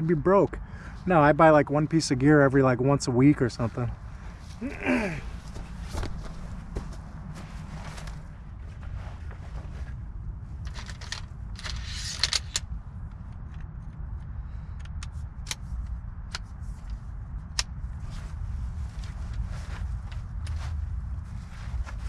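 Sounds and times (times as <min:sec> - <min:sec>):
distant highway traffic rumble: 0:00.0 - 0:22.0
camping gear rustling: 0:04.3 - 0:12.4, 0:17.8 - 0:22.0.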